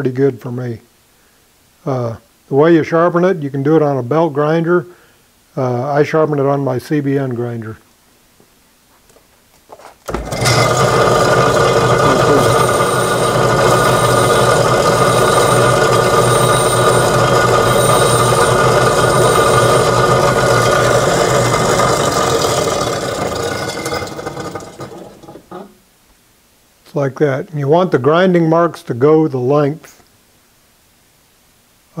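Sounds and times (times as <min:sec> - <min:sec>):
high whine of grinding electrode: 0:10.1 - 0:25.7
bench grinder motor hum: 0:10.1 - 0:25.8.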